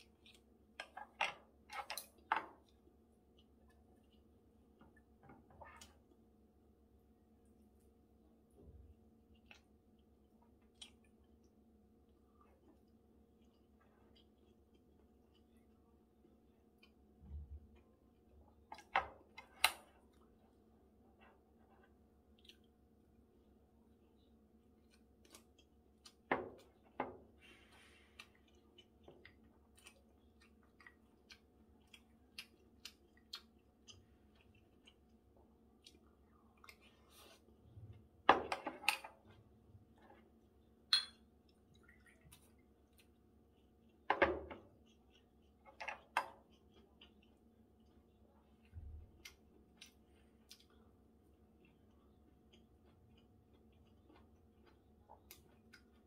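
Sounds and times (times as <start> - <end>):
chewing: 12.1 - 17.1, 21.3 - 22.8, 27.5 - 38.0, 41.5 - 56.0.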